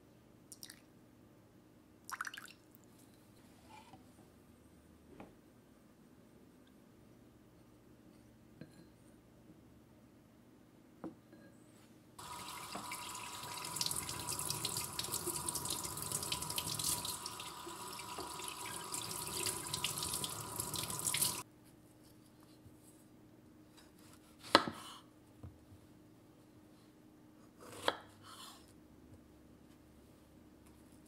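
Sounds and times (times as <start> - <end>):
faucet water splashing into sink: 12.2 - 21.4.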